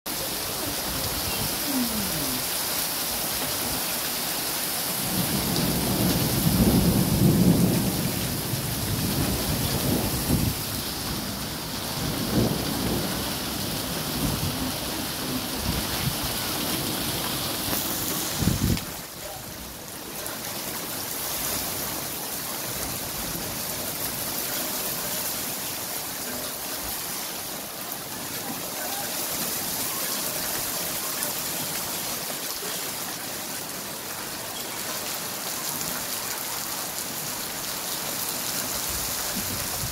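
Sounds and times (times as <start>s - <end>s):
heavy rain hissing: 0.1s - 39.9s
thunder rumble: 5.0s - 19.2s.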